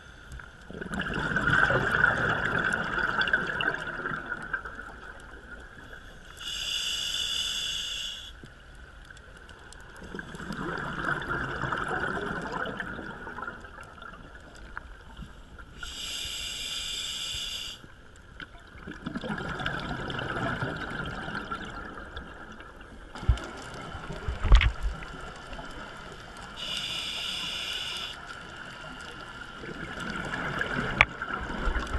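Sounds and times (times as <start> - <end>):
exhaled bubbles rushing: 0.7 - 5.1, 10.1 - 14.4, 18.8 - 22.5
regulator inhalation hiss: 6.1 - 8.4, 15.8 - 17.9, 26.6 - 28.3.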